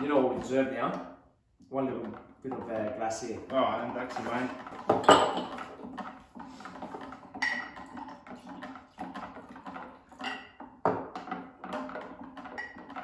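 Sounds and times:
wine pouring into glasses: 2.5s - 13.0s
glass clinking: 4.1s - 6.0s, 7.0s - 8.1s, 10.2s - 13.0s.

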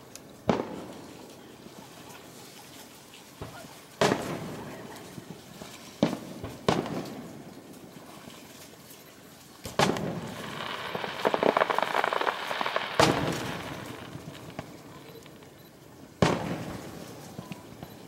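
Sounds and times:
dense firework crackling: 0.0s - 2.4s, 3.4s - 8.0s, 9.6s - 18.0s
firework booms echoing: 3.4s - 4.8s, 6.0s - 7.3s, 9.6s - 15.5s, 16.2s - 17.9s.

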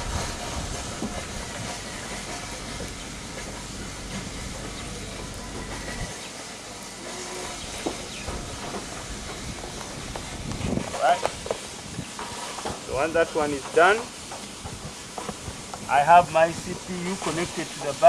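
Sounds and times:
wind buffeting microphone: 0.0s - 6.3s, 7.6s - 12.2s.

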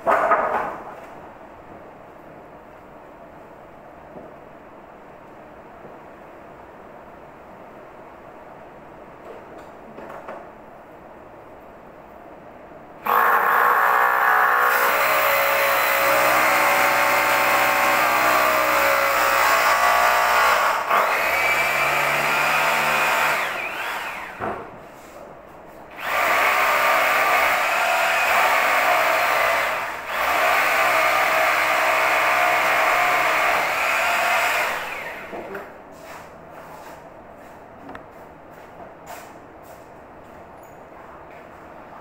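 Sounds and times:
power tool motor whining: 13.1s - 24.4s, 26.0s - 35.4s.

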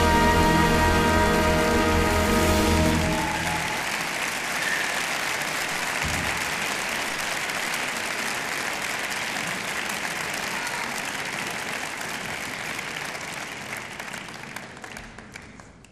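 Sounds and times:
orchestra held chord: 0.0s - 4.2s
audience applause: 0.0s - 15.9s.

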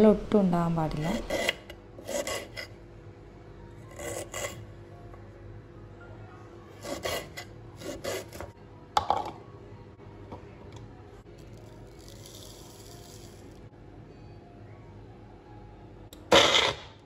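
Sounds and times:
knife cutting on wooden board: 1.0s - 2.7s, 3.9s - 4.6s, 6.8s - 8.5s.

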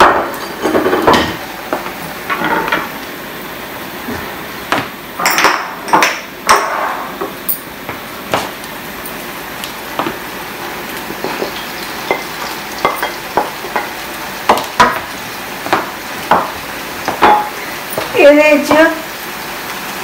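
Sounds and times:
plates and utensils clinking: 0.0s - 3.0s, 5.2s - 7.7s, 11.2s - 18.9s.

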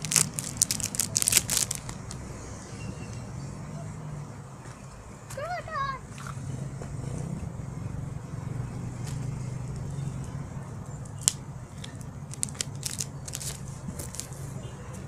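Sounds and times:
foil wrappers crinkling and tearing: 0.0s - 2.2s, 12.3s - 14.3s.

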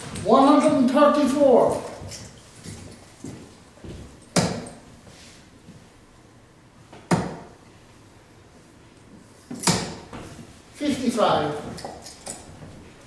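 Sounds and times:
darts striking dartboard: 4.4s - 4.8s, 7.0s - 7.5s, 9.6s - 10.1s.

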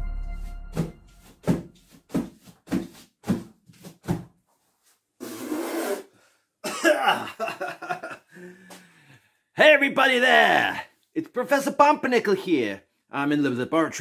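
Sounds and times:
man coughing: 6.6s - 8.1s.

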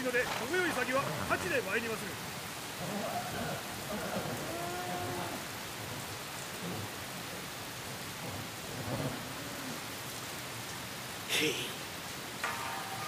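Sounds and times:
steady rain falling: 0.0s - 13.0s
low animal call: 2.8s - 5.5s.

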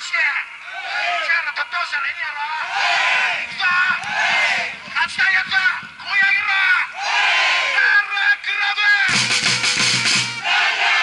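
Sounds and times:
football crowd chanting: 2.6s - 4.9s, 6.9s - 7.8s, 10.4s - 11.0s.

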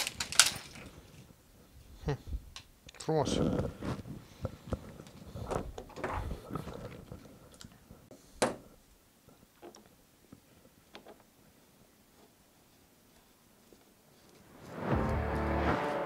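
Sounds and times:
plastic and metal clicks and rattles: 0.0s - 0.9s.

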